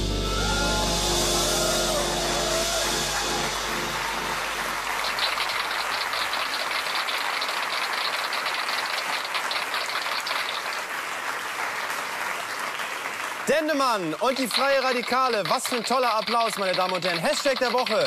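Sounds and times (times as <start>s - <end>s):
low note from band: 0.0s - 5.3s
audience applauding: 0.0s - 18.0s.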